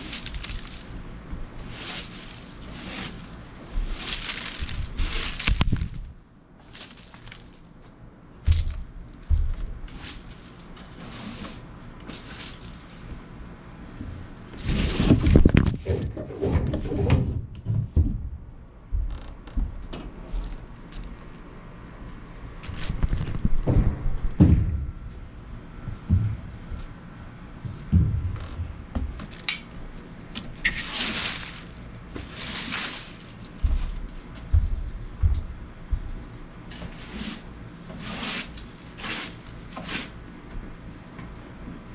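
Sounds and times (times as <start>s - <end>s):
broom sweeping dry leaves: 0.0s - 7.6s, 9.4s - 13.3s, 14.6s - 15.5s, 30.2s - 34.4s, 36.7s - 40.2s
dull thumps on wooden deck: 8.4s - 9.8s, 17.3s - 20.0s, 23.5s - 24.9s, 27.6s - 29.3s, 33.6s - 36.2s
broom knocking microphone: 8.4s - 10.1s, 25.8s - 26.9s, 27.6s - 29.4s, 33.6s - 36.2s.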